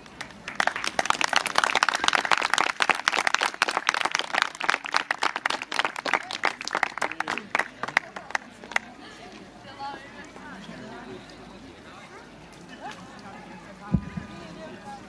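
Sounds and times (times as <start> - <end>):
audience applauding: 0.2 - 8.9.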